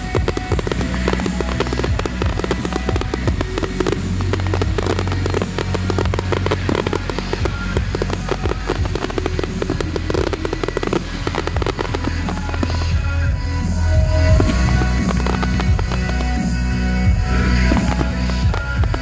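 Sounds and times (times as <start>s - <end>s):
fireworks bangs and crackles: 0.0s - 19.0s.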